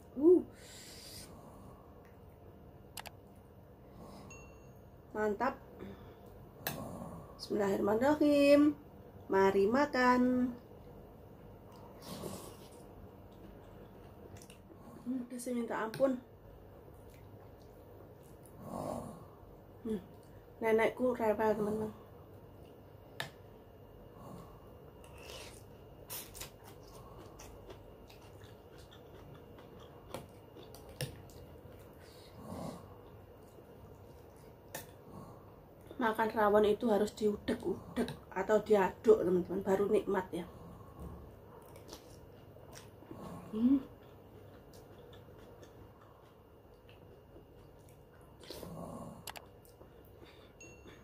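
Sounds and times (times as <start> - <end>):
mouth sounds of eating: 11.6 - 16.3, 16.9 - 20.6, 24.1 - 50.4.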